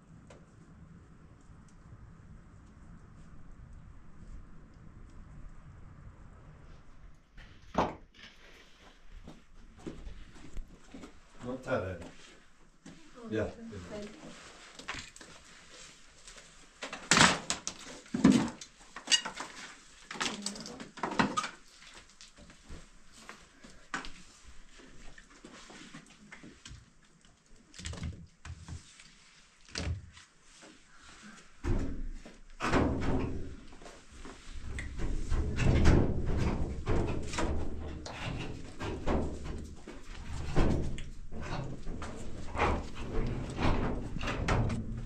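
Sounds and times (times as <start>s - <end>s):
knocks and thuds: 31.6s - 33.6s, 34.9s - 45.0s
low scraping rumble: 34.4s - 45.0s.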